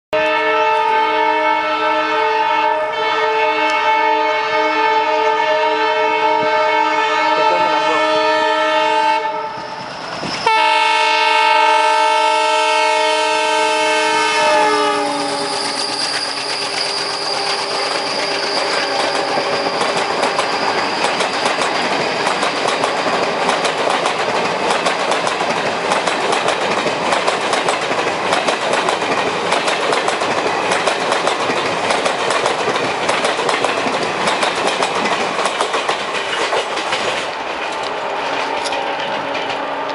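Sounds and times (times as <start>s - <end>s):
locomotive horn blasts: 0.2s - 9.7s, 10.4s - 16.1s
train wheels clickety-clack: 14.7s - 39.9s.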